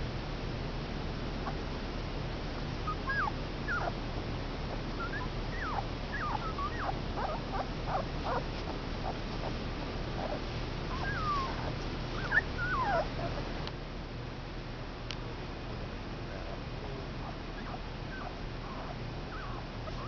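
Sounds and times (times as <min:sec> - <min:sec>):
puppies whimpering: 0:02.9 - 0:04.0, 0:05.0 - 0:13.5, 0:17.2 - 0:20.0.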